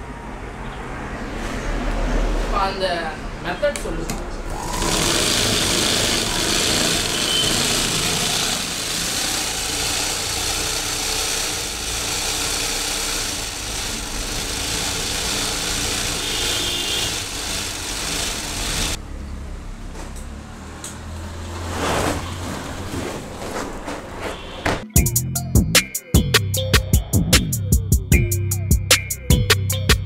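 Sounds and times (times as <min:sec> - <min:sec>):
sewing machine running: 0:04.5 - 0:19.0.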